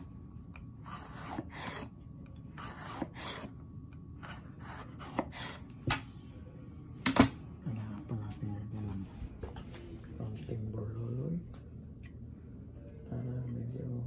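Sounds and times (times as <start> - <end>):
knife slicing pepper: 0.8 - 1.9, 2.6 - 3.5, 4.2 - 5.7.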